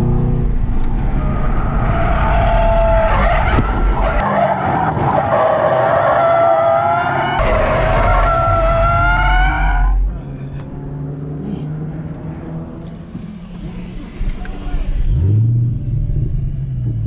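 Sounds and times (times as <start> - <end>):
low engine drone: 8.8 - 17.0.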